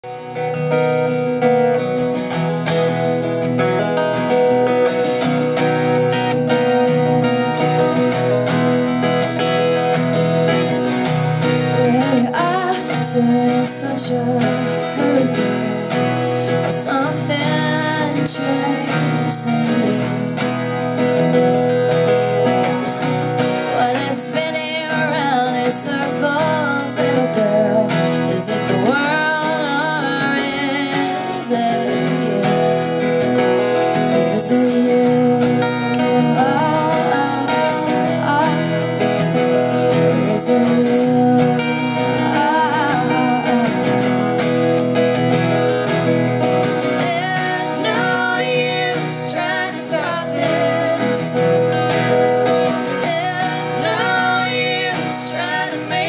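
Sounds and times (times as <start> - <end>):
acoustic guitars strummed: 0.0 - 56.0
person singing: 9.6 - 20.8, 23.6 - 45.6, 46.5 - 56.0.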